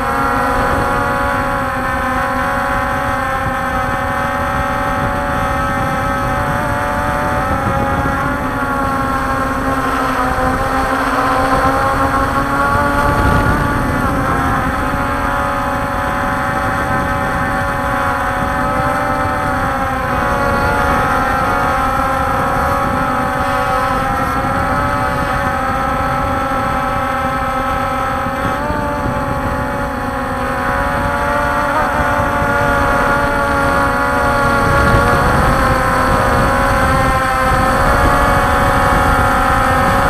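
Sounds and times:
quadcopter propellers whining: 0.0s - 40.0s.

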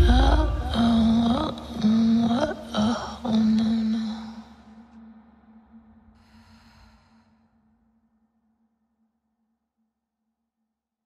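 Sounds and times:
low soundtrack note: 0.0s - 1.4s.

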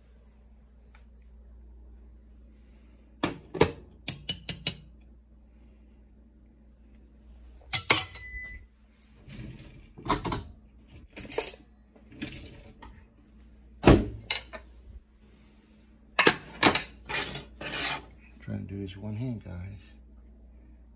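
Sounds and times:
faint low hum: 0.0s - 20.9s
dishes and pans clinking: 7.7s - 8.6s.

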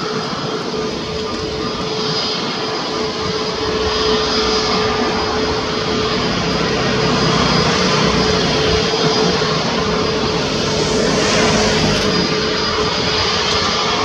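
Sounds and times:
jet engines whining: 0.0s - 14.0s.

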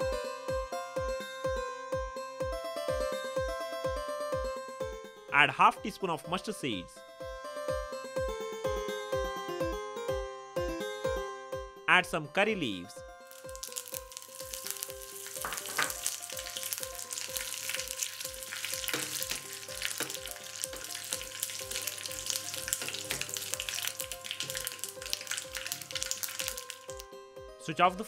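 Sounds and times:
seeds sizzling and popping in oil: 13.2s - 27.1s
spoon stirring in a pan: 13.3s - 27.0s.

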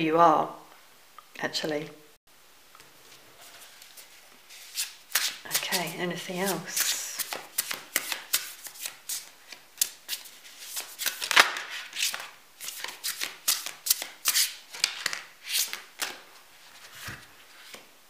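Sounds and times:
cards shuffling: 3.4s - 17.9s.

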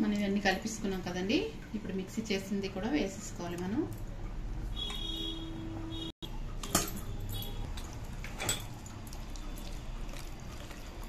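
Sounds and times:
chicken being mixed by hand: 8.8s - 11.0s.

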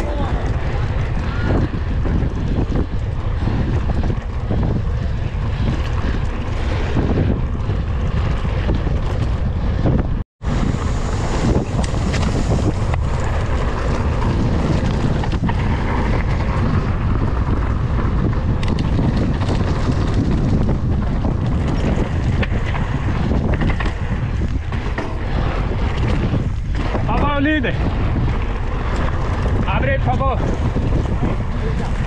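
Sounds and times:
bike knocking and rattling: 0.0s - 32.0s
wind buffeting microphone: 0.0s - 32.0s
tyres rolling on dirt: 10.4s - 32.0s.

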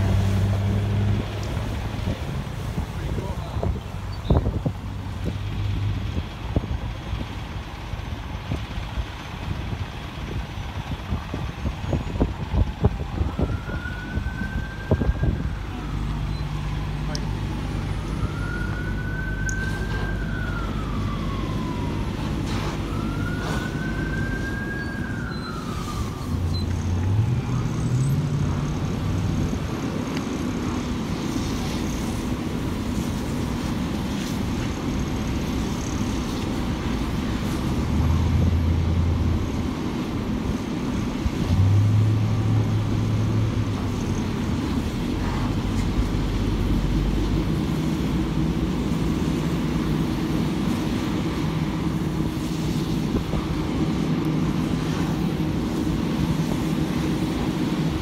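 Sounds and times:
low engine rumble: 0.0s - 58.0s
emergency siren wailing: 10.0s - 30.0s.

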